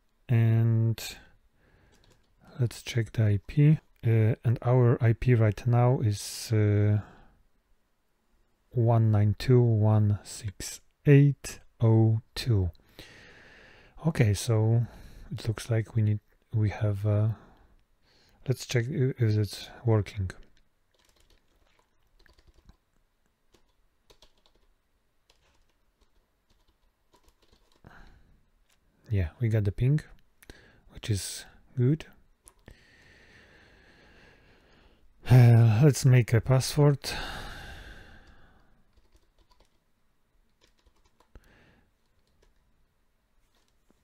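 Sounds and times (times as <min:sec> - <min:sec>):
keyboard typing: 0:01.9 - 0:02.4, 0:20.4 - 0:28.1, 0:38.3 - 0:39.8, 0:40.5 - 0:42.7.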